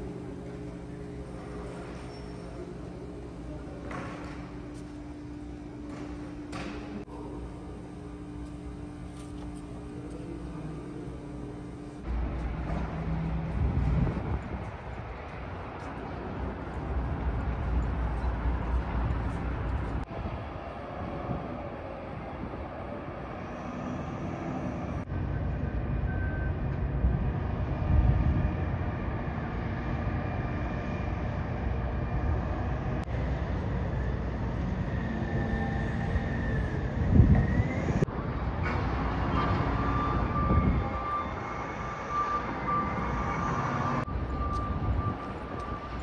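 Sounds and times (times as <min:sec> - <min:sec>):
vehicle traffic rumble: 0:00.0 - 0:23.4.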